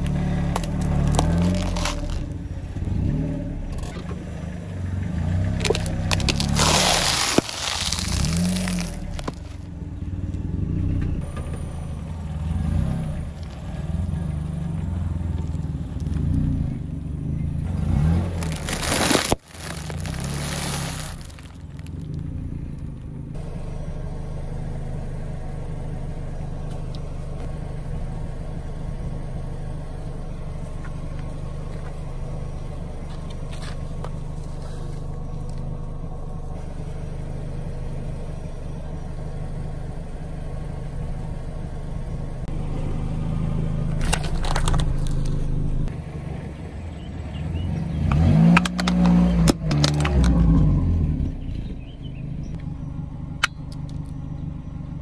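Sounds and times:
car engine idling: 0.0s - 55.0s
tyre crushing soft objects: 0.5s - 2.3s, 5.6s - 9.7s, 18.2s - 22.1s.

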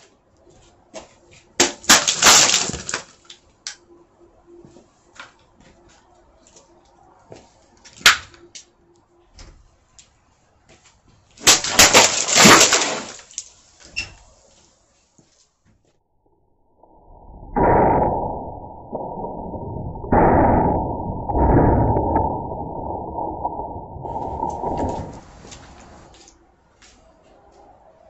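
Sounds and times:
sharp crack: 11.4s - 13.5s.

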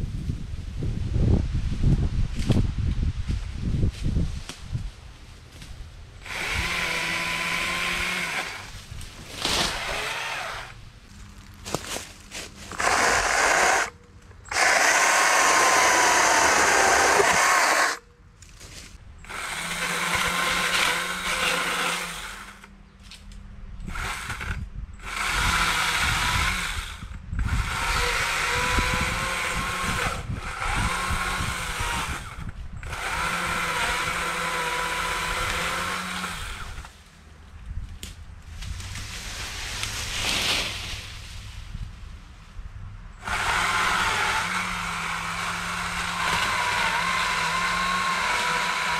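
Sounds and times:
battery chainsaw cutting: 6.2s - 10.8s, 12.7s - 18.0s, 19.2s - 22.7s, 23.8s - 36.9s, 43.2s - 48.9s.

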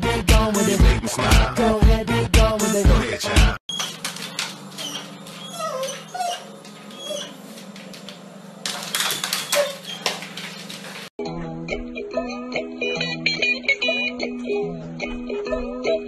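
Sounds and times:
knocks and scrabbling: 3.7s - 11.1s
dog whimpering: 3.8s - 8.0s, 9.0s - 10.7s.

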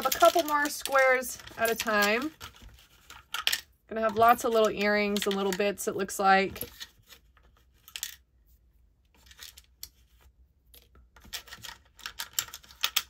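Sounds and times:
jewelry clinking: 0.0s - 2.5s.

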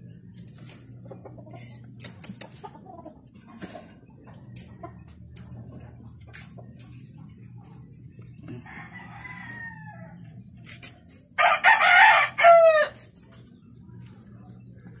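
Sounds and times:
rooster crowing: 8.6s - 10.2s, 11.4s - 13.0s.

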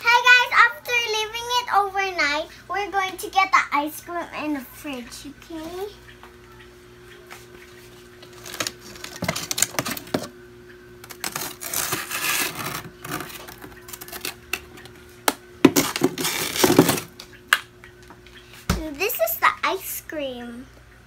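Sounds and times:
faint steady hum: 0.0s - 21.0s
plastic containers rustling and knocking: 8.2s - 10.3s, 15.6s - 17.2s.

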